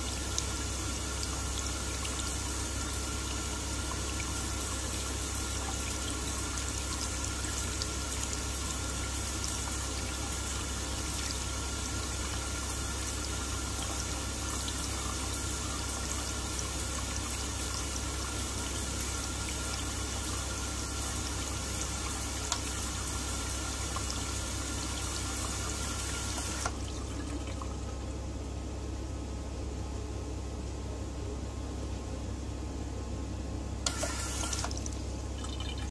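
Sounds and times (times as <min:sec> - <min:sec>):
faucet water running into cup: 0:00.0 - 0:28.0, 0:33.8 - 0:35.9
faucet shut-off click: 0:22.5 - 0:22.7, 0:26.2 - 0:26.8, 0:33.8 - 0:35.0.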